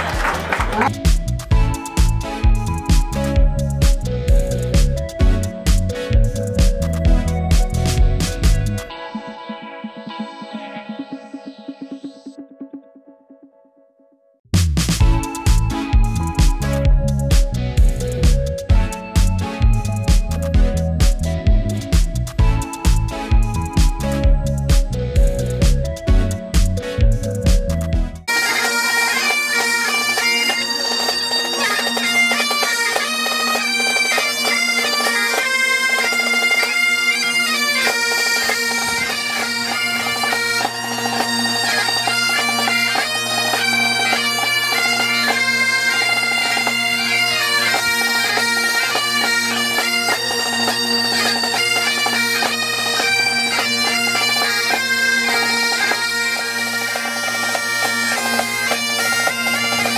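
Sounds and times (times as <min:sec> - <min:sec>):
bagpipes playing a tune: 0:00.2 - 0:09.1, 0:15.0 - 0:59.9
snare drum beating: 0:37.8 - 0:46.9.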